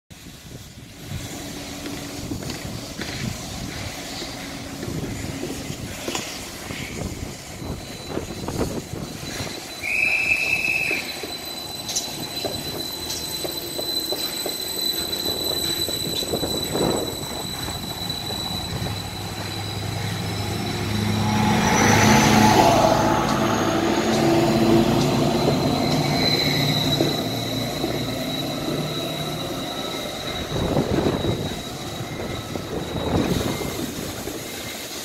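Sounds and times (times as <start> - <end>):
high whine from train: 0.1 - 35.0
train pulling away: 0.1 - 35.0
short high beep: 7.6 - 33.7.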